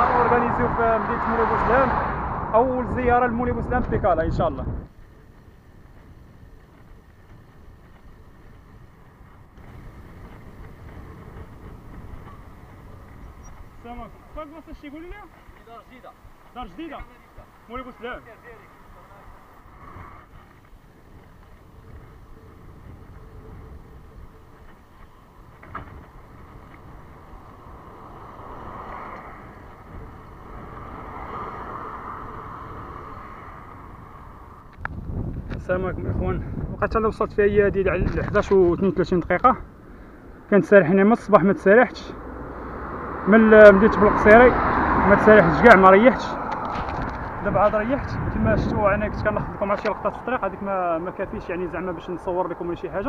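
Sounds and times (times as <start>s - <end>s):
road noise: 0.0s - 53.0s
wind buffeting microphone: 0.0s - 53.0s.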